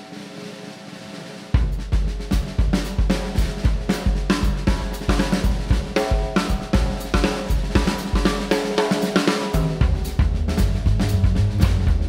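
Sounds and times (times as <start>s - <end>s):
drum kit beat: 0.0s - 12.0s
upbeat band music: 1.5s - 12.0s
heavy low bass line: 9.8s - 12.0s.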